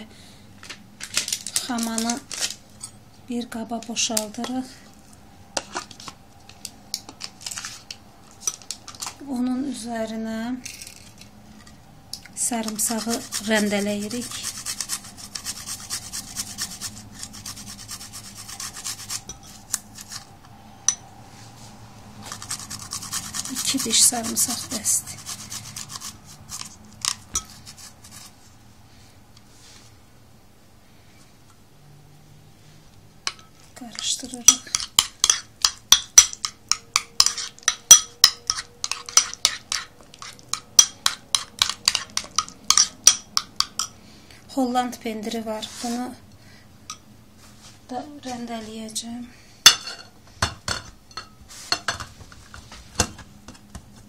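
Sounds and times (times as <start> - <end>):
garlic rasping on hand grater: 12.6 - 19.3, 22.3 - 28.3
metal spoon clinking against bowl: 33.3 - 44.0, 50.7 - 52.0.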